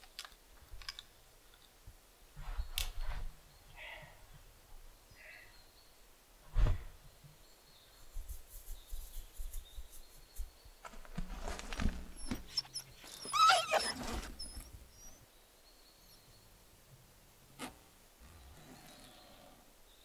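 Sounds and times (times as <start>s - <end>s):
rustling handling noises: 8.2s - 14.8s
dog whimpering: 12.2s - 15.2s.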